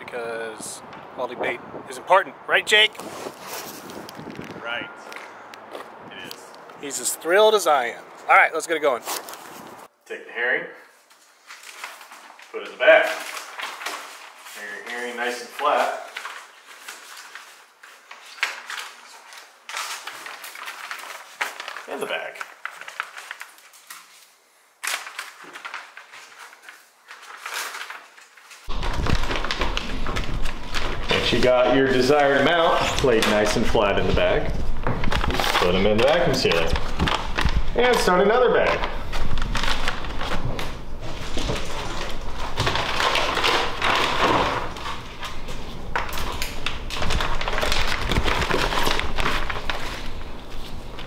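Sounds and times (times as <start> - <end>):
plastic bag crinkling: 11.0 - 51.0.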